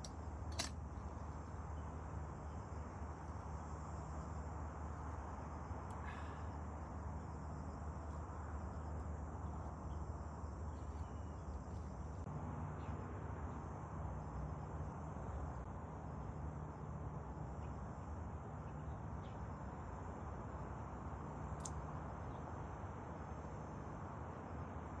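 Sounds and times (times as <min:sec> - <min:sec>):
insects chirring: 0:00.0 - 0:15.7
low hum and hiss: 0:00.0 - 0:25.0.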